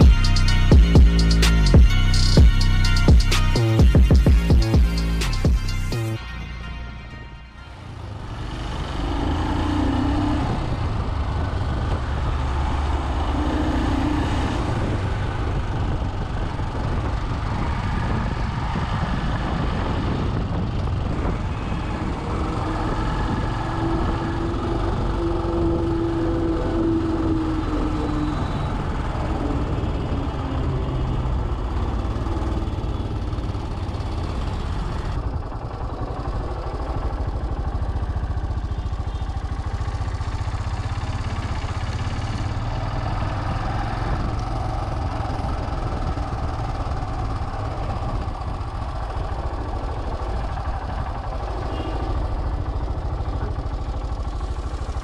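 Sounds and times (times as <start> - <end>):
motorcycle engine running: 0.0 - 6.2, 7.8 - 55.0
city traffic: 0.0 - 55.0
wind rumble on microphone: 10.2 - 39.3.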